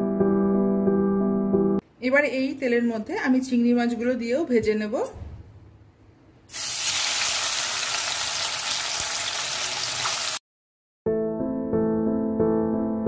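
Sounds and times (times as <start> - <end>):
piano music: 0.0 - 1.8, 11.1 - 13.0
prawns sizzling in hot oil: 6.5 - 10.4.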